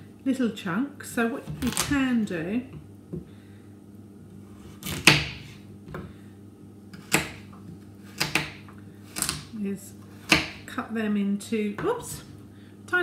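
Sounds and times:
knife chopping vegetables on board: 0:04.8 - 0:05.6, 0:07.0 - 0:07.5, 0:08.1 - 0:09.5, 0:10.1 - 0:10.7.

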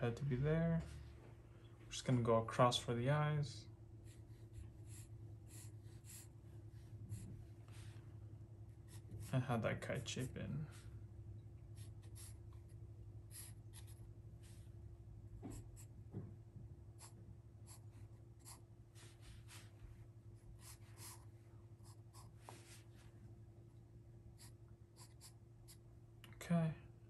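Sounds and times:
low steady hum: 0:00.0 - 0:27.0
pencil scratching on paper: 0:04.1 - 0:06.3, 0:11.8 - 0:12.4, 0:13.3 - 0:14.0, 0:20.6 - 0:22.6, 0:24.4 - 0:25.8.

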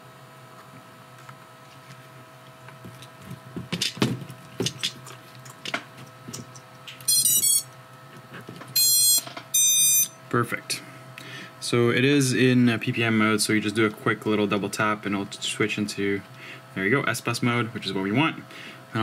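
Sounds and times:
motor power-up beeps: 0:07.0 - 0:07.7, 0:08.8 - 0:10.2.

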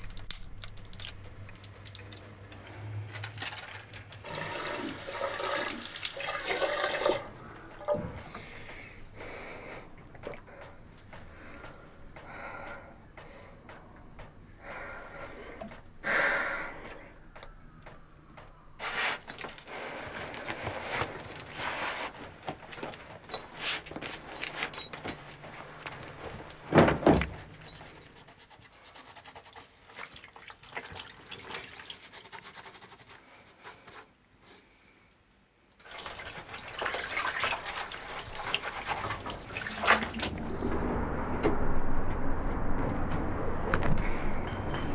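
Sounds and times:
water splashing at a sink: 0:03.4 - 0:08.0, 0:29.6 - 0:32.6, 0:35.8 - 0:40.7
woman breathing: 0:07.4 - 0:13.8, 0:14.6 - 0:17.2.

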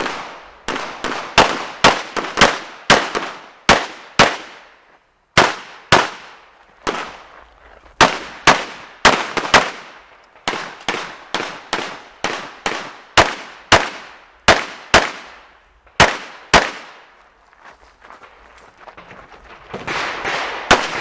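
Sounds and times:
pistol shots with echo: 0:00.0 - 0:04.7, 0:05.4 - 0:07.3, 0:08.0 - 0:17.1, 0:19.8 - 0:21.0.

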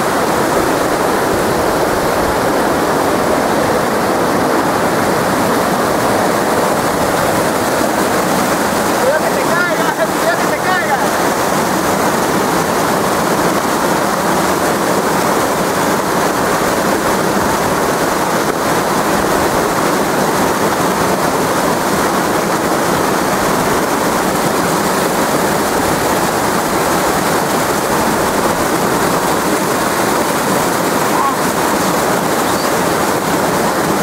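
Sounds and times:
river rapids rushing over rocks: 0:00.0 - 0:34.0.

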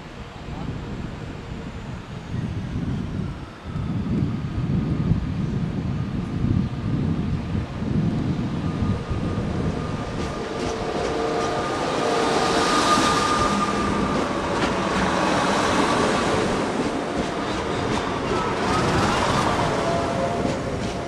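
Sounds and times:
diesel train running past: 0:00.0 - 0:21.0
steady whine: 0:07.6 - 0:21.0.

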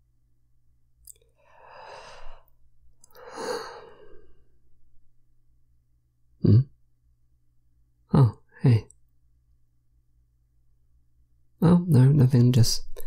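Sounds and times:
man sighing: 0:03.1 - 0:04.5.

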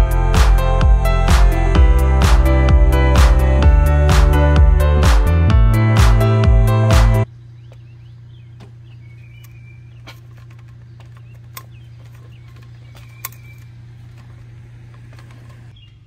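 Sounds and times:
small birds chirping: 0:07.2 - 0:16.0.

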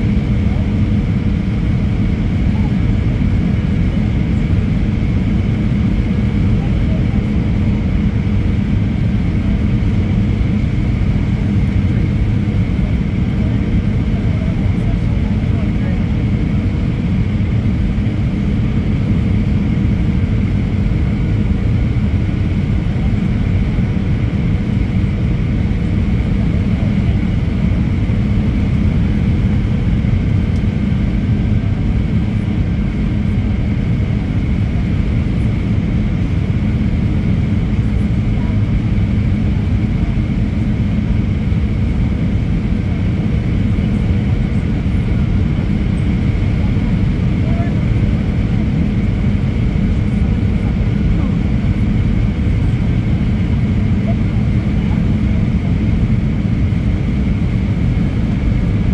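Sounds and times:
faint steady whine: 0:00.0 - 0:58.9
jet engine and airflow rumble: 0:00.0 - 0:58.9.

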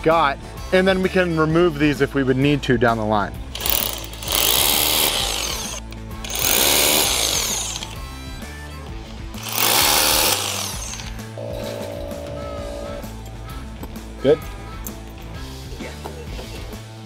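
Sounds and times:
background music: 0:00.0 - 0:17.0
hammer drill boring into concrete: 0:03.5 - 0:08.0, 0:09.4 - 0:11.4.

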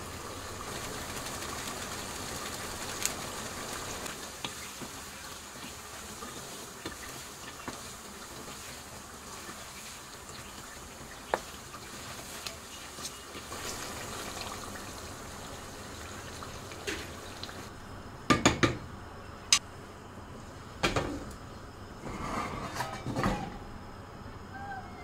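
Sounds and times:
pot bubbling and sizzling: 0:00.0 - 0:17.7.

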